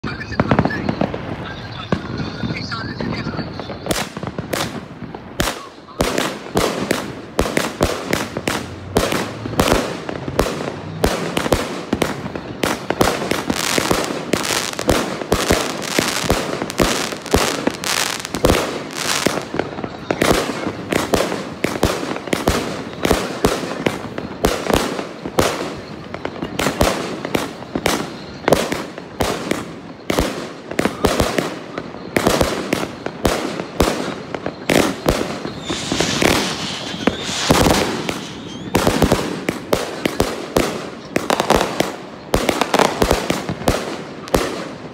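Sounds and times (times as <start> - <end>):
firework cake sharp bangs: 0.0 - 44.9.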